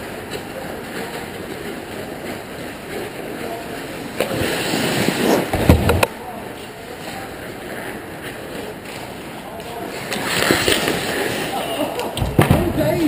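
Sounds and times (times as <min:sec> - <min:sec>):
skates scraping ice: 0:00.1 - 0:13.0
loud thump: 0:05.5 - 0:06.1, 0:12.2 - 0:12.8.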